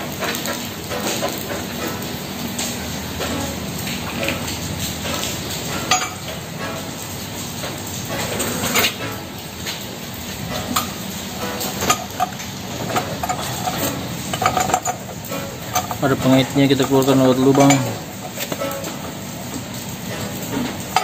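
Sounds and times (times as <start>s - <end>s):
metal chain clinking on wheel: 11.6s - 19.2s.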